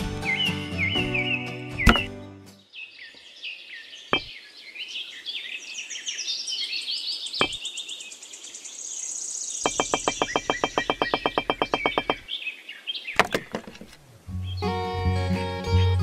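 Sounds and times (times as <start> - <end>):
birds chirping and singing: 0.2 - 14.7
bricks set down on a board: 1.9 - 2.1, 13.2 - 14.0
fast even clicking: 9.7 - 12.2.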